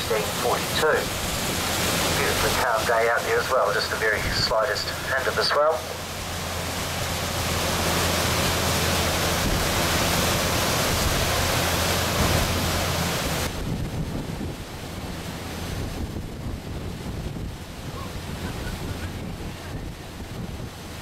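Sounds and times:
low engine hum: 0.0s - 21.0s
water rushing past boat hull: 0.0s - 21.0s
wind buffeting microphone: 6.0s - 21.0s.

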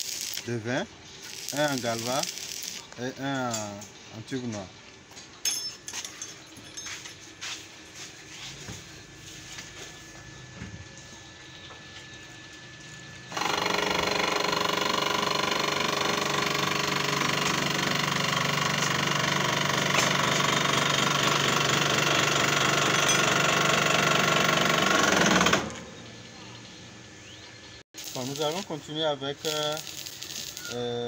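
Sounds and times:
electric motor running: 0.0s - 3.4s, 12.8s - 25.9s, 28.0s - 31.0s.

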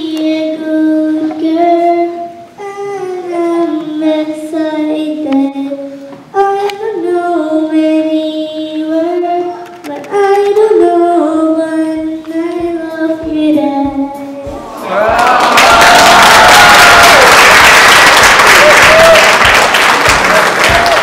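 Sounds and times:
girl singing slow song: 0.0s - 15.2s.

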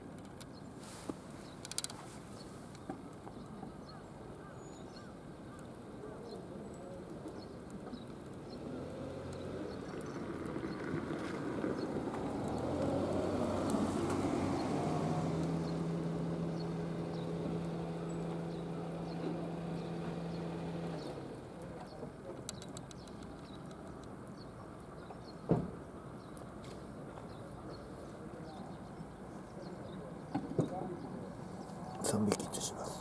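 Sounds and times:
passing engine rumble: 8.6s - 21.8s.

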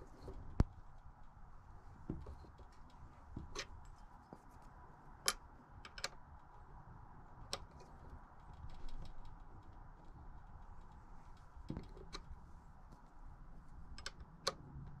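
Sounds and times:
tools and parts clicking and tapping: 2.0s - 4.1s, 5.2s - 6.6s, 10.7s - 13.1s, 13.8s - 15.0s.

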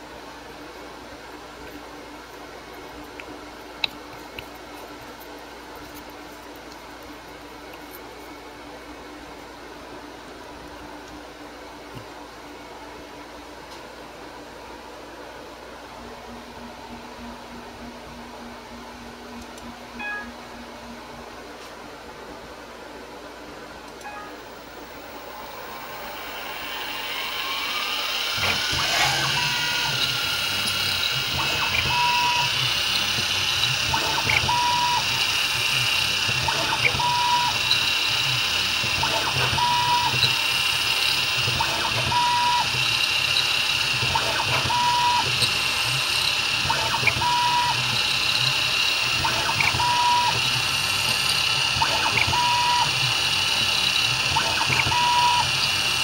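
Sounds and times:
milling machine spindle whine: 24.4s - 56.0s
end mill cutting plastic: 25.4s - 56.0s.

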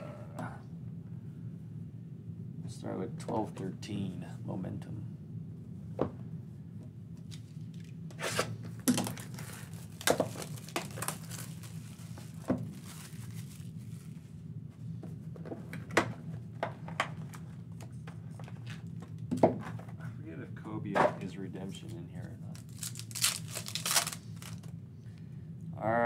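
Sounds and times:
steady low hum: 0.0s - 26.0s
shrink wrap tearing and crinkling: 7.3s - 14.1s, 22.2s - 24.7s.

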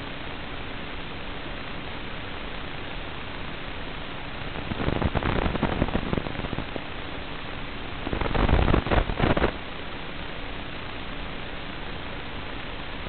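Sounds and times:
crackling static: 0.0s - 13.0s
radio receiver hiss: 4.3s - 9.7s.

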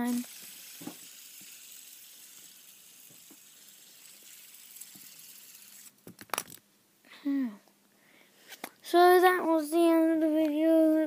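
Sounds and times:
fidget spinner whirring: 0.0s - 6.1s.

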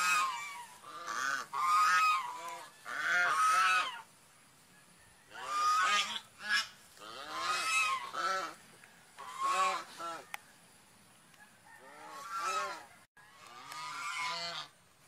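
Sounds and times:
swan honking calls: 0.0s - 4.1s, 5.3s - 8.6s, 9.2s - 10.3s, 11.7s - 14.8s.

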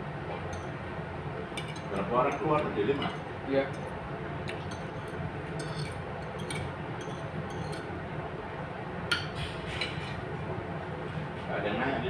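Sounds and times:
low background hum: 0.0s - 12.0s
cutlery clinking on a plate: 1.6s - 3.9s, 4.5s - 7.9s.

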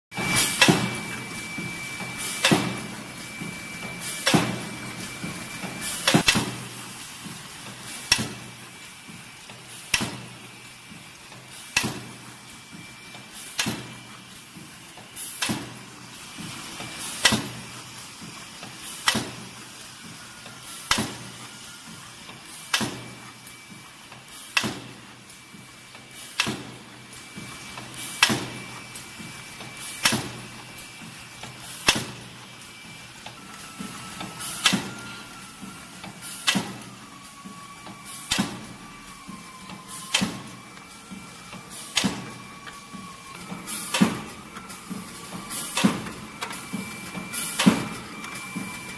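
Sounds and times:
machine clacking: 0.3s - 10.4s, 41.4s - 48.9s.

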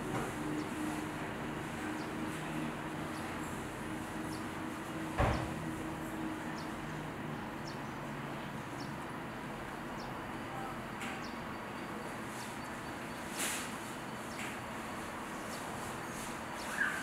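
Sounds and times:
outdoor background noise: 0.0s - 17.0s
faint high chirp: 16.6s - 17.0s.

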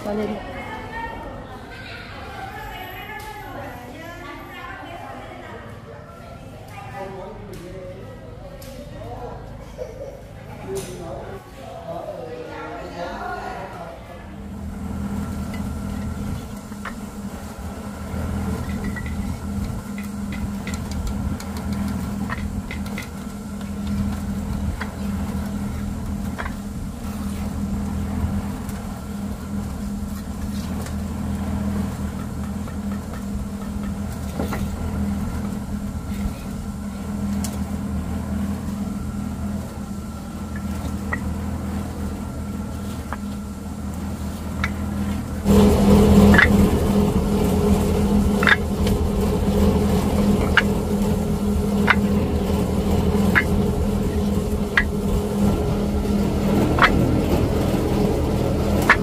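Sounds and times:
faint clicks and rattles: 14.5s - 59.0s
motorbike engine running: 14.5s - 59.0s.

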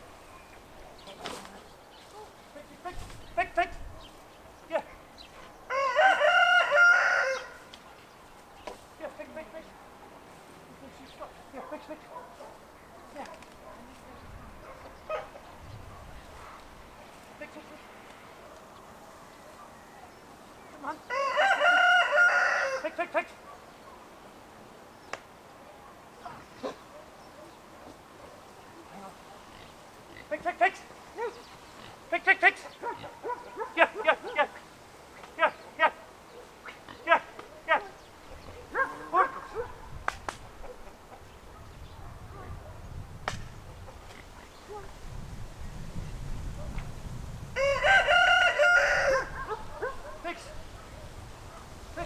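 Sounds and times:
rooster crowing: 5.7s - 7.7s, 21.1s - 23.0s, 47.6s - 49.6s
dog barking and yelping: 11.5s - 16.7s, 31.2s - 31.5s, 32.6s - 34.6s, 35.3s - 42.8s, 48.1s - 51.7s.

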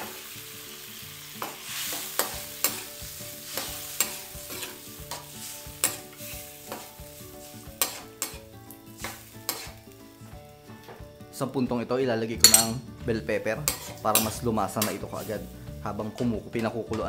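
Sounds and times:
liquid sizzling in hot oil: 0.0s - 11.2s, 12.4s - 12.8s, 13.4s - 15.8s
metal spoon scraping a pot: 3.6s - 6.9s, 7.8s - 8.4s, 9.0s - 9.8s, 12.4s - 12.8s, 13.6s - 15.3s.

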